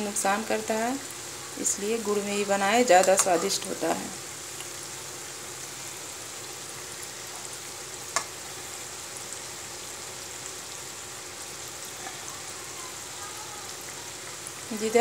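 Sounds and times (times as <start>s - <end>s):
fritters sizzling in oil: 0.0s - 15.0s
metal spoon clinking on pan: 3.0s - 3.6s.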